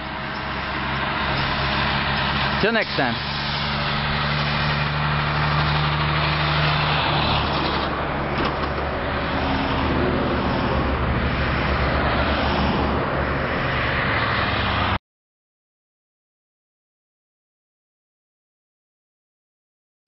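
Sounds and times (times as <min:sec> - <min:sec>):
cars passing: 0:00.0 - 0:15.0
truck engine drone: 0:00.0 - 0:15.0
tyre and road noise: 0:00.0 - 0:15.0.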